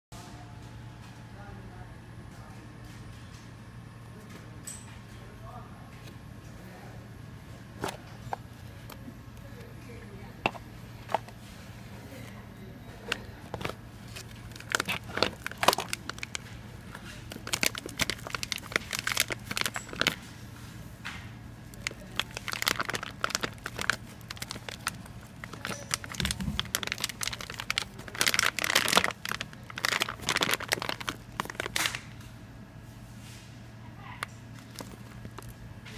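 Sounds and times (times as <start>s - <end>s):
plastic bag crinkling: 10.4s - 12.4s, 13.0s - 20.4s, 21.7s - 32.2s, 34.5s - 35.6s.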